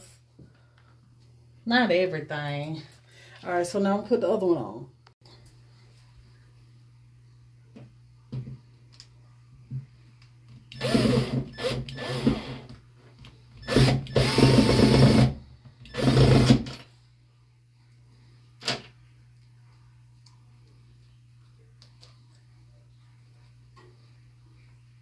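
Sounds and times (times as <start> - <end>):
cordless drill driving screws: 10.8 - 12.6, 13.6 - 15.3, 15.9 - 16.7.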